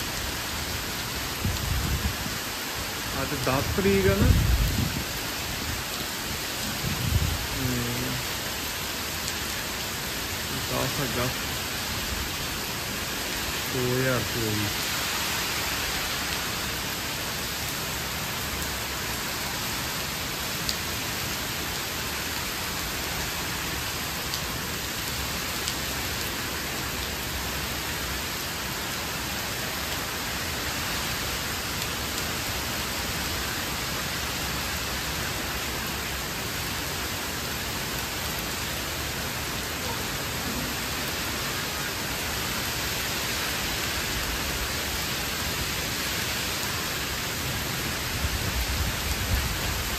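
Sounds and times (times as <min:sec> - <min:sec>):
heavy rain pouring on trees: 0:00.0 - 0:49.9
raindrops ticking close by: 0:01.5 - 0:15.0.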